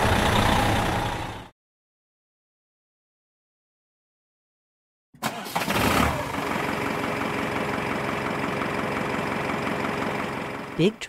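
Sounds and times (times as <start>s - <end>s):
truck engine starting and idling: 0.0s - 1.5s, 5.2s - 11.0s.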